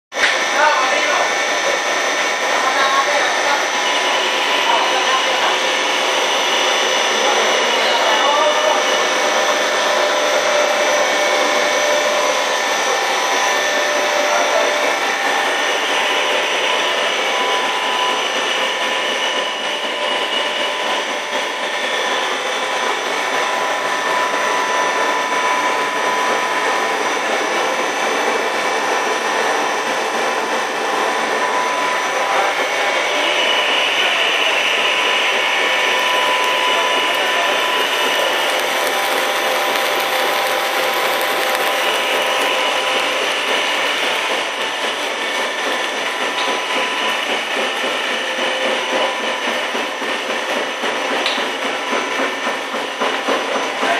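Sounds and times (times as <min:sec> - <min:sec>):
machinery mechanical drone: 0:00.2 - 0:53.9
electric motors whining: 0:00.3 - 0:49.6.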